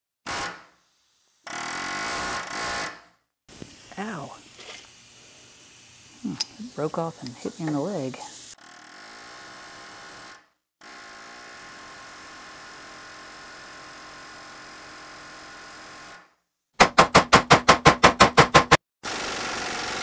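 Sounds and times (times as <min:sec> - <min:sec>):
pneumatic air hammer hammering: 0:00.2 - 0:03.2, 0:16.8 - 0:20.0
faint shop hum: 0:00.3 - 0:15.6.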